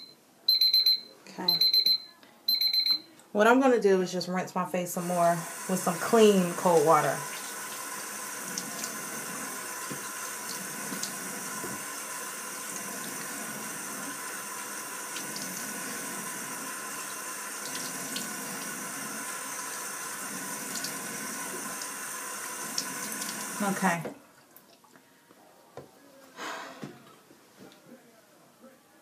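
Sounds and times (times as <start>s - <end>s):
sink tap running: 5.0s - 24.0s.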